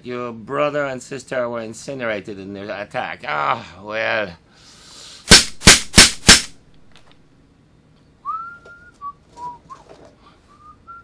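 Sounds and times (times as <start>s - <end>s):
man whistling: 8.2s - 11.0s.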